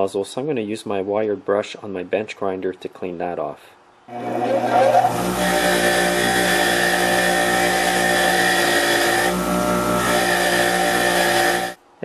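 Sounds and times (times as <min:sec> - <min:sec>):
bench grinder running: 0:04.1 - 0:11.8
wire brush scrubbing metal: 0:04.3 - 0:11.8.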